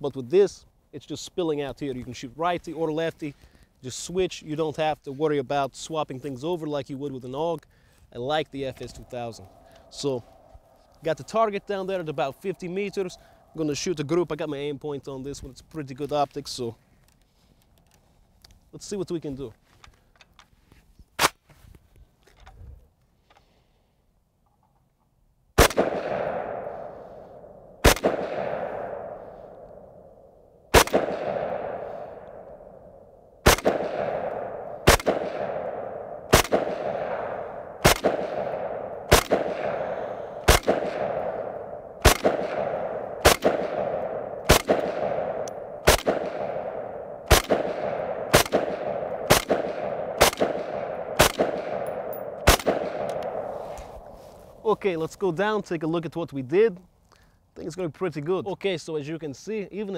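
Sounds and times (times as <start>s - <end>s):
rifle shots with rolling echo: 8.3s - 14.7s, 25.6s - 54.7s.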